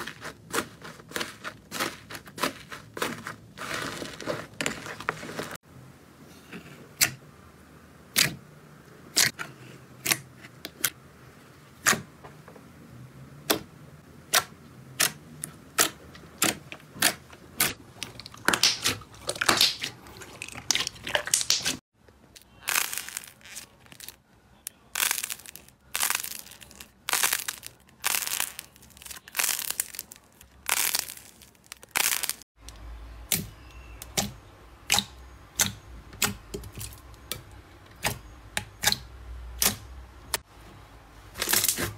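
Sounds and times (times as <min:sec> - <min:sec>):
air pops and crackles in slime: 0:15.8 - 0:21.8, 0:22.6 - 0:24.2, 0:25.0 - 0:32.4
slime squelching under hand: 0:18.0 - 0:21.8.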